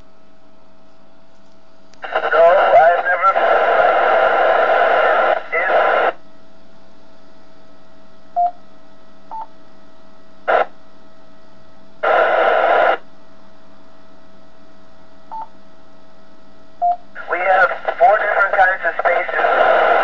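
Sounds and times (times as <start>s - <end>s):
radio crackle: 1.9s - 6.2s, 10.5s - 10.7s, 12.0s - 13.1s, 17.2s - 20.0s
static hiss burst: 12.0s - 13.0s, 17.2s - 20.0s.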